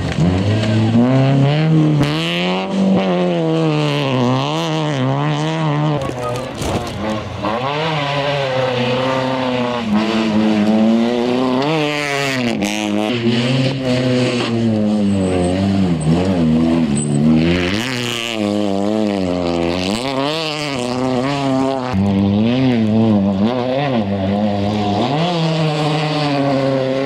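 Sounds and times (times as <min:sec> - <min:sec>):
car engines revving hard: 0:00.0 - 0:27.0.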